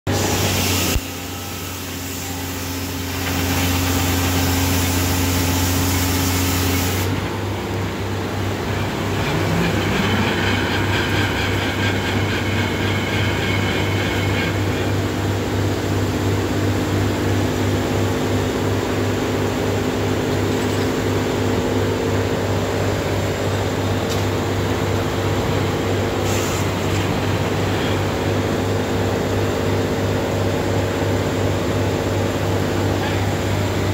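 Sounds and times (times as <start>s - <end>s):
sawmill machinery hum: 0.1s - 33.9s
rattling higher whine: 7.1s - 17.2s.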